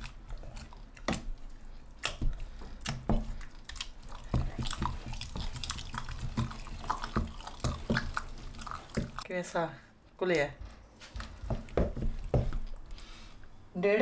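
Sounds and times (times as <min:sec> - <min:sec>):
wooden masher squelching greens: 0:00.0 - 0:09.3, 0:11.1 - 0:13.0.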